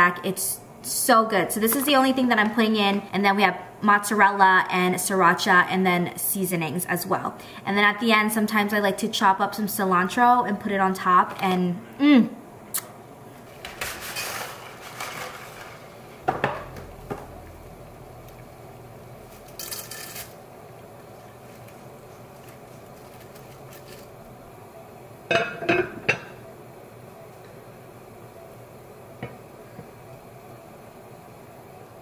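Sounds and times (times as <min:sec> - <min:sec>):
spaghetti rustle: 0:13.4 - 0:16.2, 0:19.2 - 0:24.3.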